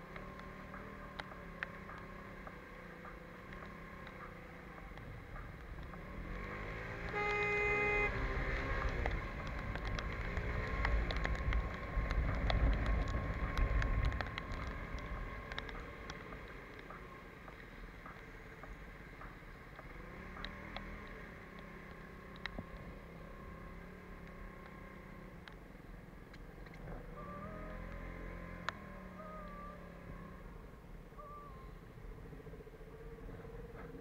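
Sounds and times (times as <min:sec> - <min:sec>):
scooter engine and road noise: 0:00.0 - 0:34.0
vehicle horn: 0:07.0 - 0:08.8.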